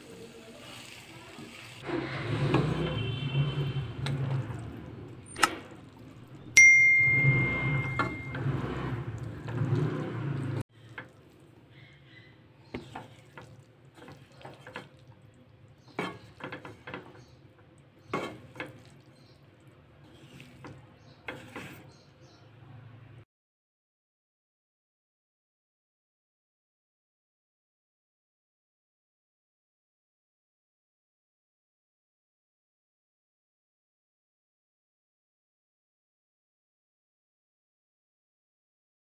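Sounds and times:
spatula scraping a pan: 0.7s - 6.4s, 12.6s - 22.4s
bell-like ding: 6.6s - 8.5s.

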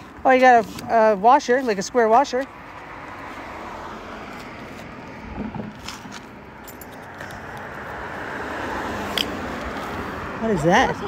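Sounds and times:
approaching car: 0.0s - 11.0s
road traffic passing: 0.0s - 11.0s
light metallic clicks and clinks: 6.6s - 7.4s.

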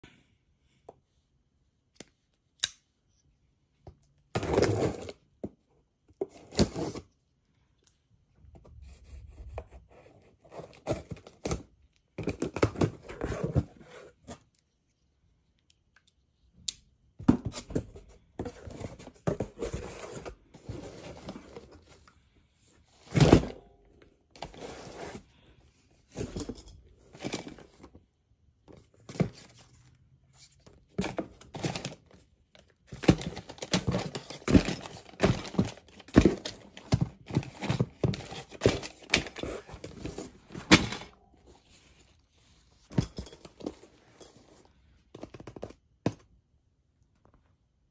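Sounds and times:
cardboard rustling and scraping: 12.3s - 14.5s, 17.2s - 22.1s, 24.4s - 25.4s, 26.0s - 28.0s, 28.7s - 32.2s, 32.9s - 45.8s.

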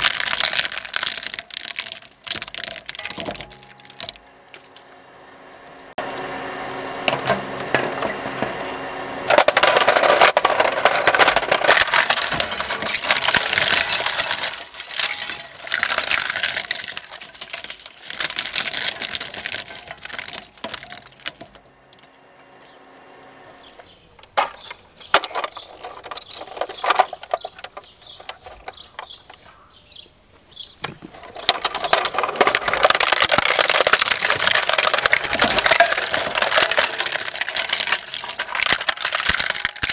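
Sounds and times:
shredder crunching plastic: 0.0s - 4.9s, 7.0s - 22.2s, 31.0s - 39.9s
shredder running tone: 0.0s - 24.0s, 31.2s - 39.9s.

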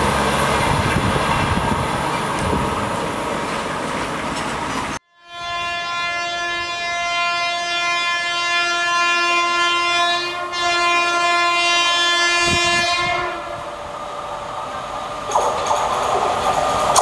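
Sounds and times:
train running noise: 0.0s - 5.0s, 10.2s - 17.0s
locomotive horn: 5.1s - 13.8s.

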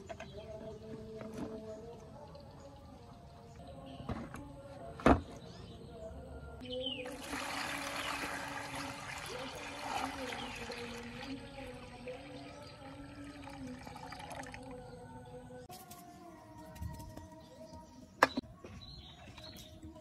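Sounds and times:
water pouring into plastic tub: 7.0s - 14.8s.

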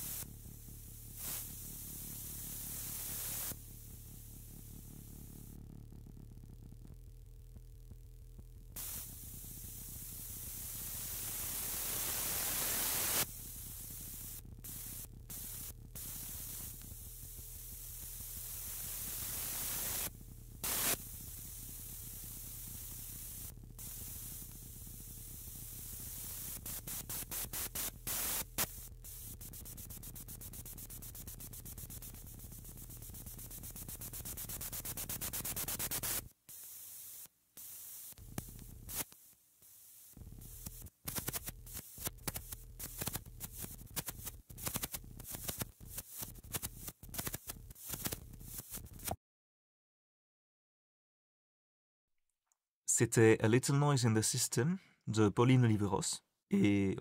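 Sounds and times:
white-noise hiss: 0.0s - 5.6s, 8.8s - 49.1s
scattered clicks and noise bursts: 26.6s - 29.8s, 31.9s - 49.2s.

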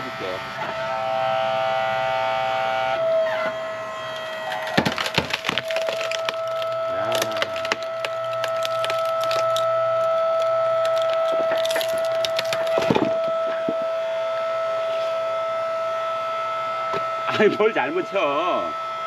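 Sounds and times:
hydraulic pump whine: 0.0s - 19.0s
wood creaking: 3.3s - 13.9s
wood cracking and splintering: 3.9s - 13.8s.

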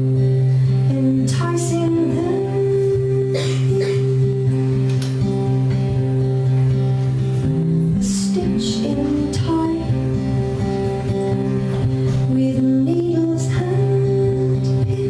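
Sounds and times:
acoustic guitar strumming: 0.0s - 15.0s
bass guitar: 0.0s - 15.0s
woman singing: 0.7s - 5.1s, 8.0s - 10.8s, 12.1s - 15.0s.

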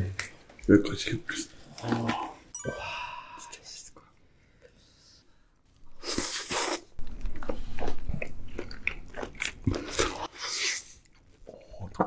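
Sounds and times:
wet chewing: 6.1s - 12.0s
crunchy bite: 7.4s - 10.8s.

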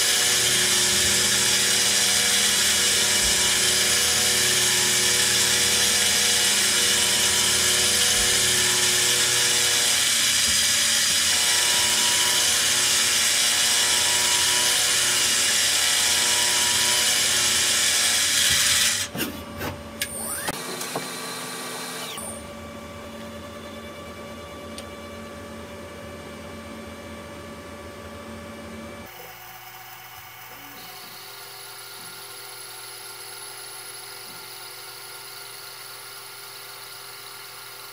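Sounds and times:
lathe cutting metal: 0.0s - 19.1s
machine winding down: 20.0s - 25.6s.

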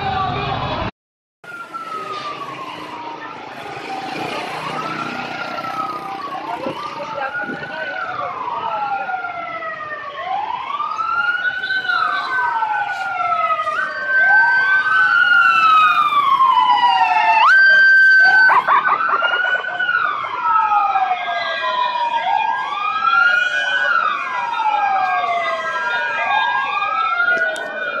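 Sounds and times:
emergency vehicle sirens wailing: 0.0s - 28.0s.

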